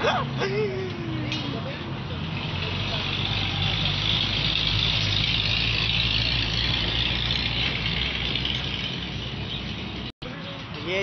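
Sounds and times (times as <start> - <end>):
engine idling: 2.3 - 10.1.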